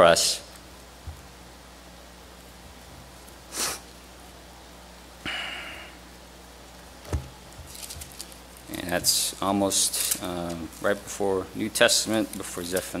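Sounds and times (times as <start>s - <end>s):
light thump: 7.0s - 7.4s
pages rustling: 7.1s - 11.1s, 11.7s - 13.0s.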